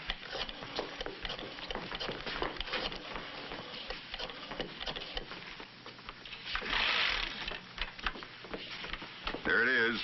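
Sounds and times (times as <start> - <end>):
footsteps on wooden floor: 0.6 - 6.7, 7.9 - 9.6.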